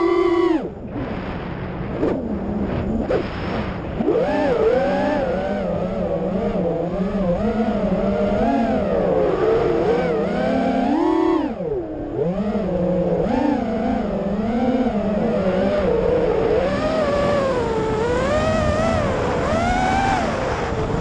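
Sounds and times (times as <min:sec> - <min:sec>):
quadcopter motors whining: 0:00.0 - 0:01.3, 0:01.9 - 0:21.0.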